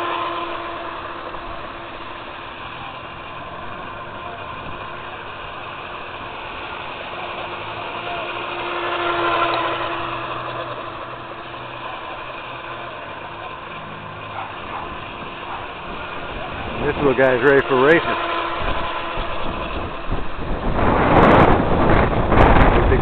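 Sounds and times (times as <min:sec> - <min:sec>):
rc boat motor whine: 0:00.0 - 0:23.0.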